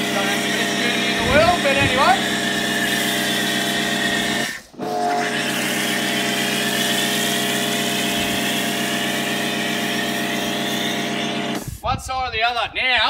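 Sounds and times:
pressure washer motor humming: 0.0s - 11.8s
foam spray hissing: 5.4s - 11.8s.

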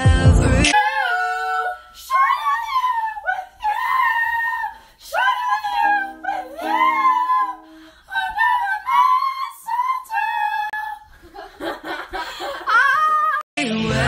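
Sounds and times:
girls singing wordlessly: 0.4s - 12.0s
girls laughing: 11.1s - 13.4s.

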